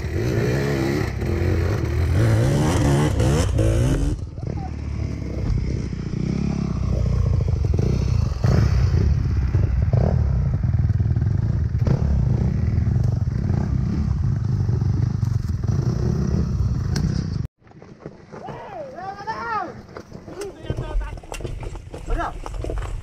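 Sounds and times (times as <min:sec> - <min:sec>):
dirt bike engine at low revs: 0:00.0 - 0:17.5.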